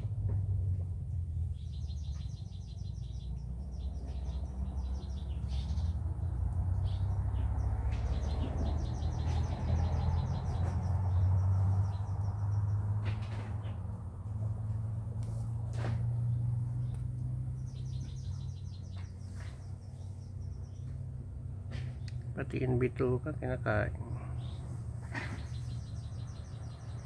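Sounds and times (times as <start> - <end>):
bird trilling chirps: 24.3 - 27.0.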